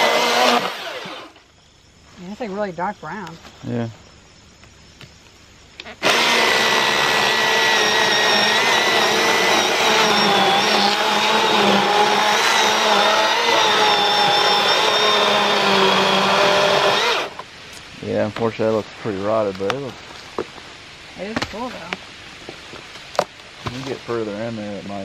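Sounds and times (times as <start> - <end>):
battery chainsaw cutting log: 0.0 - 1.4, 6.0 - 17.4.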